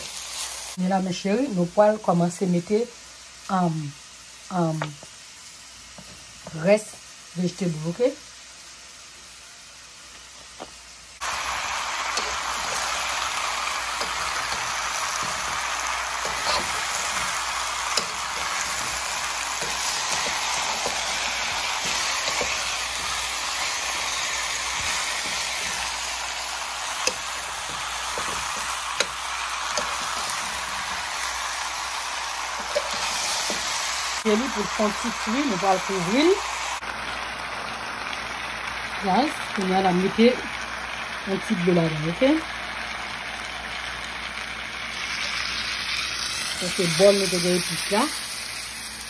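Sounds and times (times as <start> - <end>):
vegetables sizzling in oil: 0.0 - 49.0.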